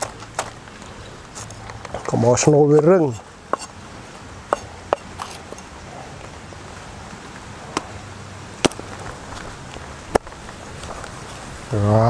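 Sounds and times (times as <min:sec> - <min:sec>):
knife chopping on wooden block: 0:03.5 - 0:03.7.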